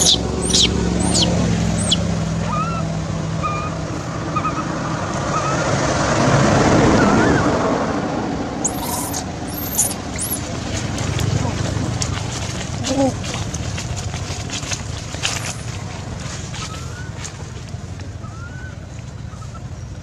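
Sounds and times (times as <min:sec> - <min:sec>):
baby monkey squealing: 0:00.0 - 0:03.8, 0:04.4 - 0:04.7, 0:08.6 - 0:10.5
noisy rumble: 0:00.0 - 0:20.0.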